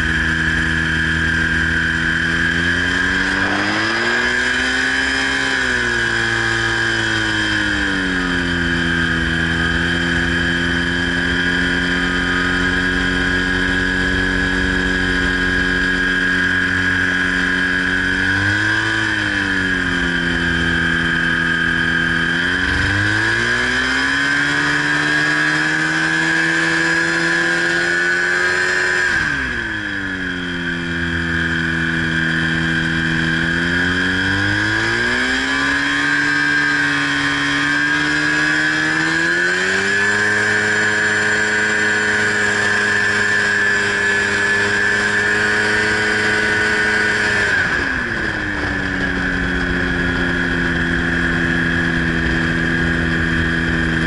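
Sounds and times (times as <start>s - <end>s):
ultralight engine and propeller: 0.0s - 54.0s
wind rush: 47.0s - 54.0s.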